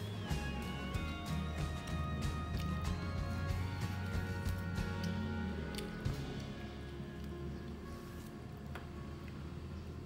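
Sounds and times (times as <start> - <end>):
quiet background music: 0.0 - 10.0.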